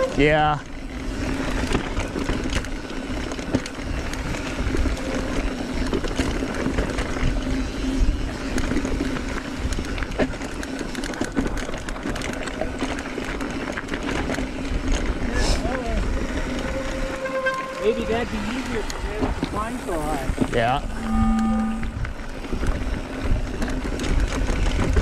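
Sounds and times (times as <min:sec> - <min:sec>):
bike clattering: 0:00.0 - 0:25.0
wind noise: 0:00.0 - 0:25.0
steady low hum: 0:15.6 - 0:23.6.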